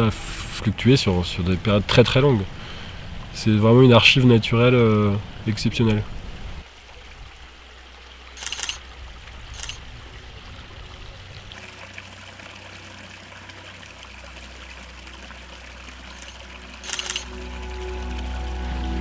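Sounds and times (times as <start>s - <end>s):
stream trickling over stones: 0.5s - 19.0s
camera shutter clicks: 8.4s - 8.8s, 9.6s - 9.8s, 16.2s - 17.4s.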